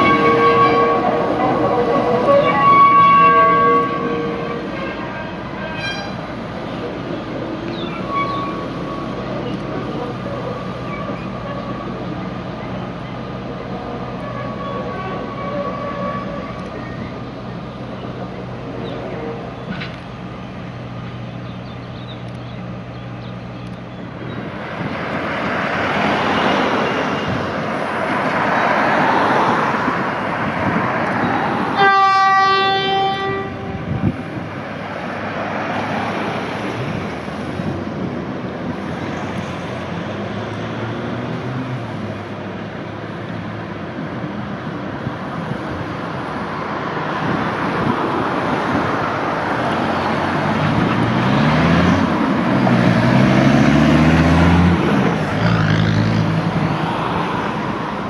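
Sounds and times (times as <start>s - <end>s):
train horn blast: 0.0s - 6.3s, 14.2s - 16.7s, 31.8s - 34.2s
diesel locomotive engine hum: 0.0s - 58.0s
train rumbling: 0.0s - 58.0s.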